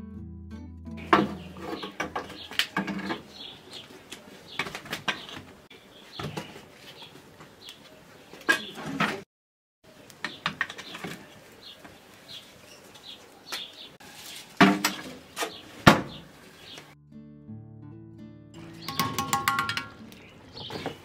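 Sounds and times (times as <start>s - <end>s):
music: 0.0s - 2.0s, 17.0s - 21.0s
birds chirping faintly: 1.0s - 9.2s, 9.9s - 14.2s, 14.9s - 17.0s, 18.6s - 21.0s.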